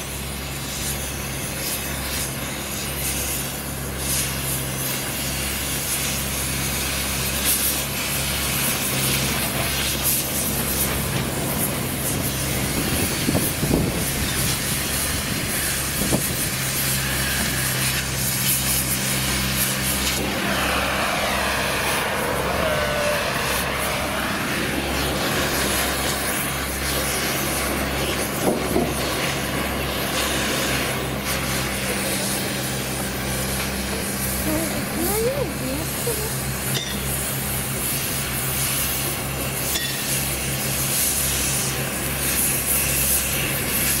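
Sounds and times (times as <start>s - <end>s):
gas cutting torch hissing: 0.0s - 44.0s
low engine drone: 0.0s - 44.0s
vehicle passing: 20.1s - 26.9s.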